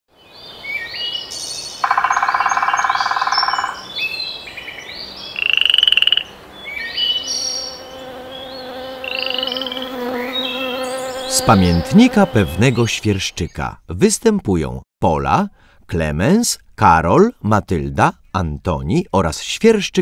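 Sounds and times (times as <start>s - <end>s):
chirps and trills: 0.8s - 5.5s
rattling pulsed croaks: 1.8s - 3.8s.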